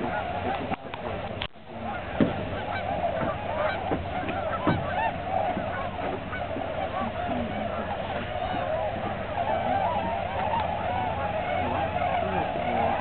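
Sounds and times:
flock of swans honking: 0.0 - 13.0.

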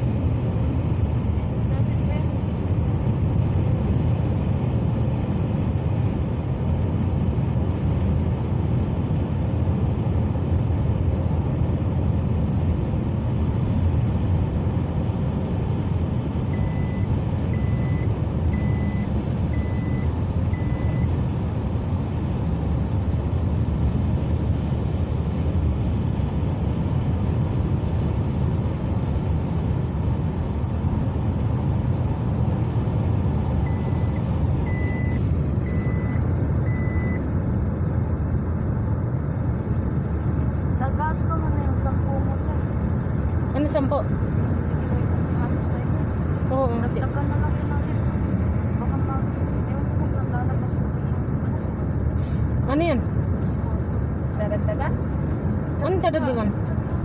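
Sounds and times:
road and engine rumble: 0.0 - 57.0
short high beeps: 16.6 - 21.1, 33.7 - 37.2.

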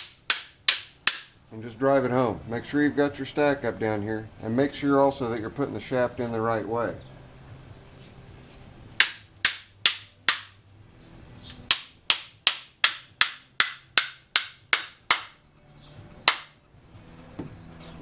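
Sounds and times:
hammer striking metal shaft: 0.0 - 1.4, 9.0 - 10.6, 11.7 - 15.4.

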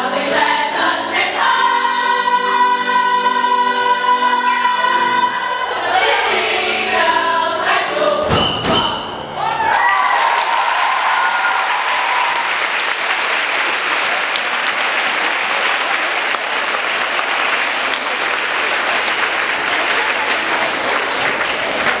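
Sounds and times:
group of singers holding a note: 0.0 - 9.6
audience clapping: 9.5 - 22.0.

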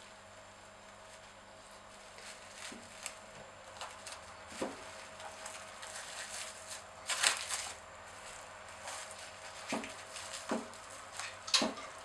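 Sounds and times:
cling film crinkling: 0.9 - 12.0.

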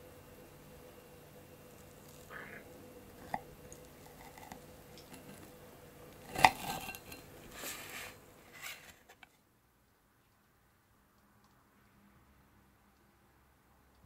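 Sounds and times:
knife slicing through cake: 6.2 - 9.0.

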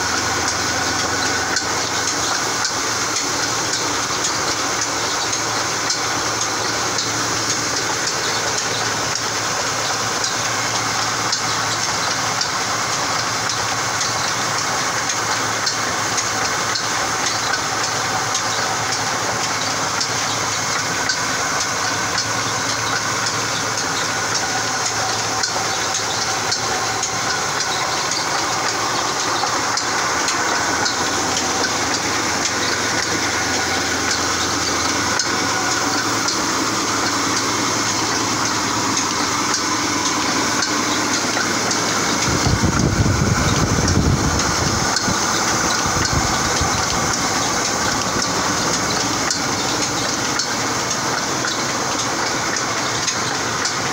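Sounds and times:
mill machinery droning: 0.0 - 53.9
heavy low rumble: 24.0 - 53.9.

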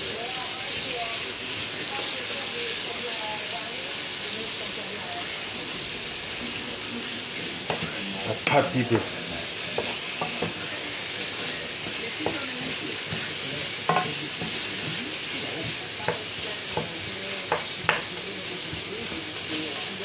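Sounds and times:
vegetables sizzling in oil: 0.0 - 20.0
spoon knocking against pot: 13.9 - 14.6, 15.6 - 18.8.

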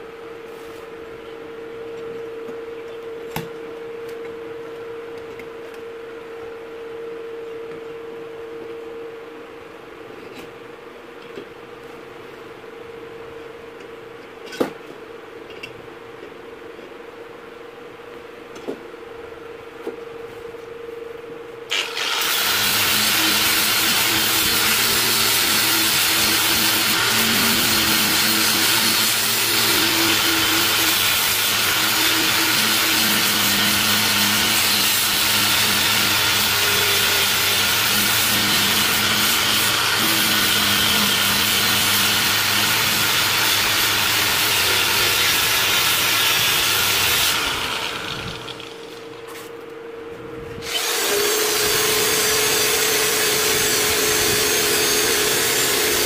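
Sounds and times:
angle grinder sanding metal: 21.7 - 49.0
electric drill with wire brush: 21.7 - 49.2, 50.6 - 56.0.

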